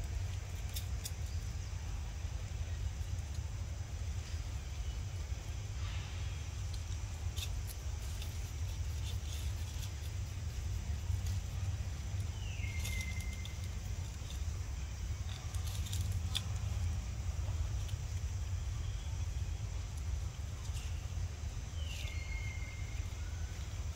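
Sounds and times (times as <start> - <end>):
dry leaves rustling and crackling: 0.0 - 23.9.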